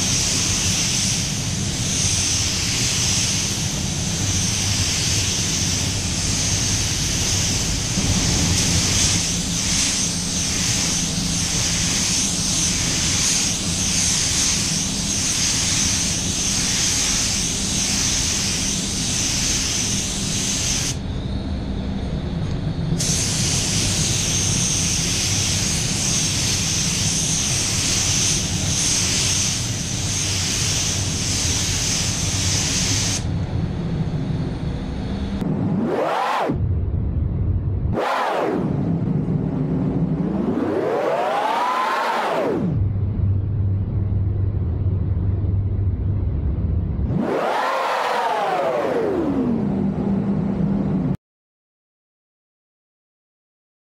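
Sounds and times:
spray gun hissing: 0.0 - 21.0, 23.0 - 33.3
low drone: 33.3 - 51.2.

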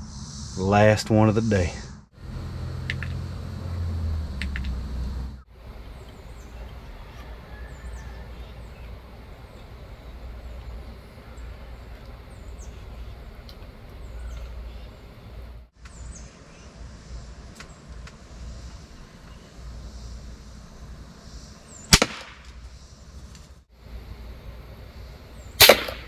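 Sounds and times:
steady low rumble: 0.0 - 21.8, 22.7 - 26.0
low hum: 0.0 - 26.0
bird chip calls: 5.9 - 16.5.

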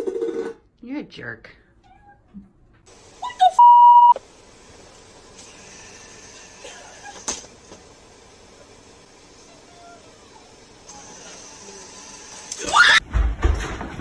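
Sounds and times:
electronic beep: 3.6 - 4.2.

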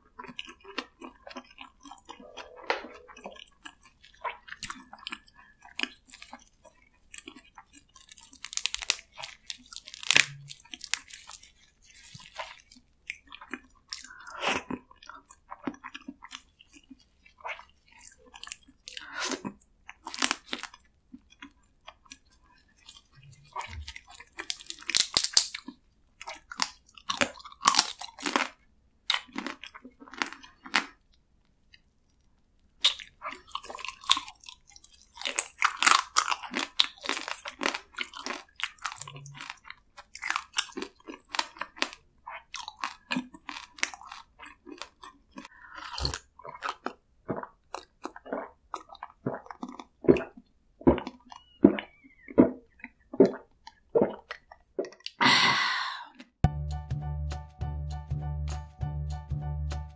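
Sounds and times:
chewing and crunching crab shell: 0.0 - 55.2
gulping water: 45.5 - 56.3.

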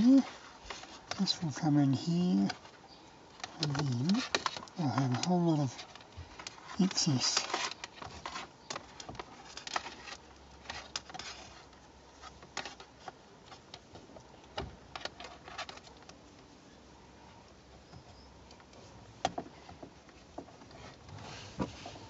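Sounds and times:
cable clicking and rustling: 0.0 - 16.5.

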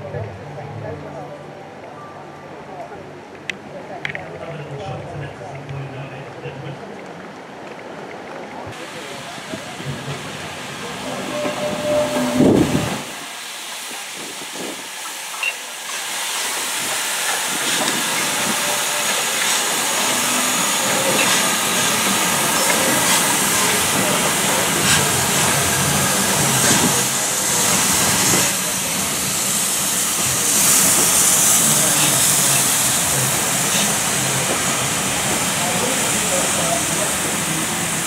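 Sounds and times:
steam locomotive hissing: 8.8 - 38.0.

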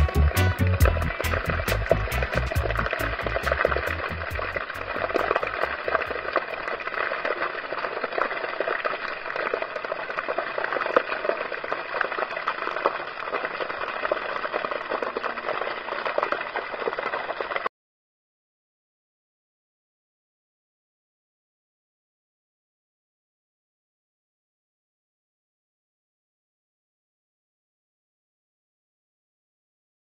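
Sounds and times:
background music: 0.0 - 5.8
fountain water splashing on stone: 0.0 - 17.7.

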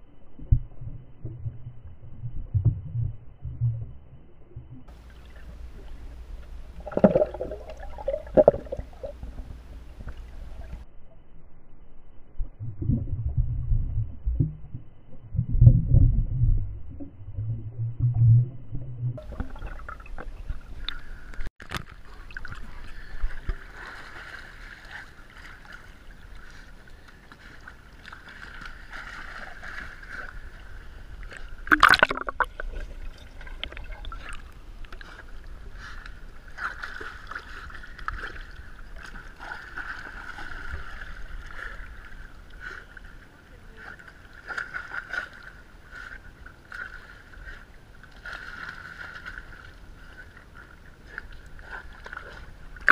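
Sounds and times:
dog swimming in water: 19.2 - 52.9.

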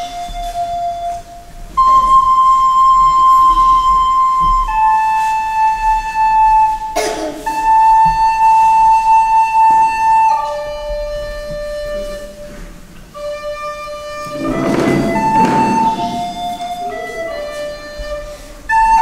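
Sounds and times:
recorder playing slow melody: 0.0 - 19.0
short noise: 14.1 - 17.2.

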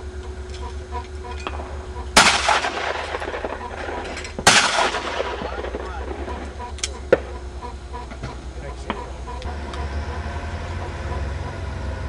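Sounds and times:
shotgun shots with echo: 1.4 - 7.4.

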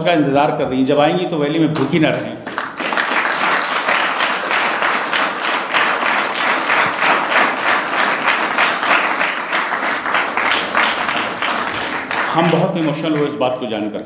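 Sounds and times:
audience applauding: 2.4 - 13.4.

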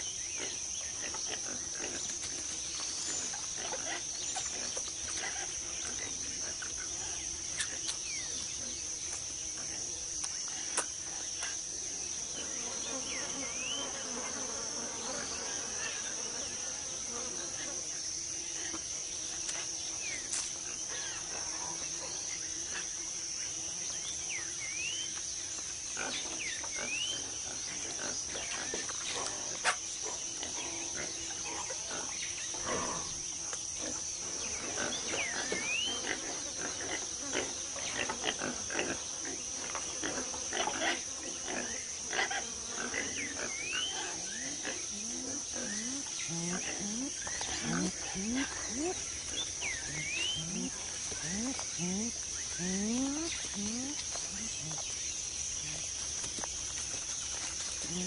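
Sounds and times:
high-pitched insect drone: 30.4 - 58.0.

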